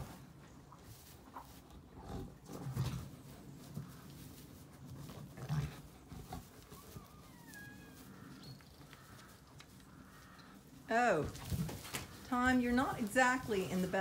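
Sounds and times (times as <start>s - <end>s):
rams jostling in straw: 2.9s - 14.0s.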